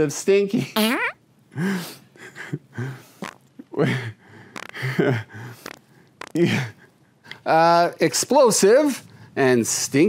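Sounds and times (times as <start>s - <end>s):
man chuckling and snorting: 2.2s - 6.9s.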